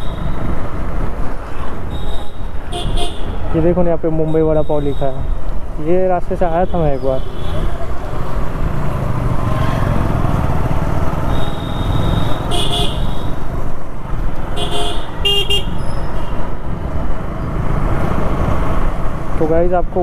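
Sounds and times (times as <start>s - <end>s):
wind: 0.0s - 20.0s
vehicle horns honking: 1.9s - 3.6s, 11.2s - 13.4s, 14.5s - 16.4s.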